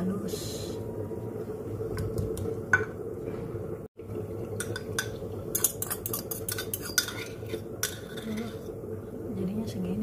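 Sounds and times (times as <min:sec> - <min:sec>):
steady low hum: 0:00.0 - 0:10.0
fork clinking and scraping bowl: 0:04.6 - 0:08.7.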